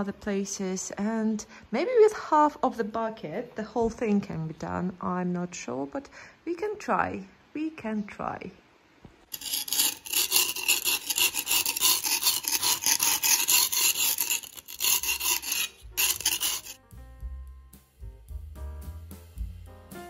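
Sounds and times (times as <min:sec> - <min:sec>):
paint scraper rasping on wall: 0:09.3 - 0:16.8
music: 0:15.5 - 0:20.0.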